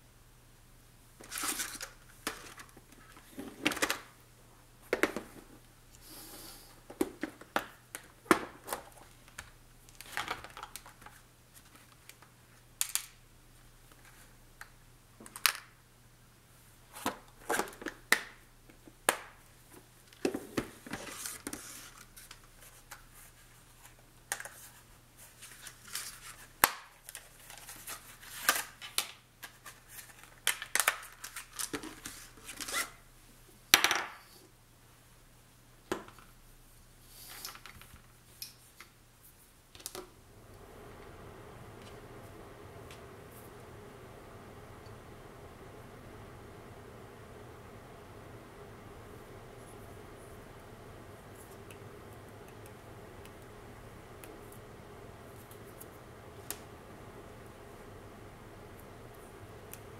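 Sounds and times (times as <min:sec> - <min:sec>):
faint low hum: 0:39.1 - 0:59.9.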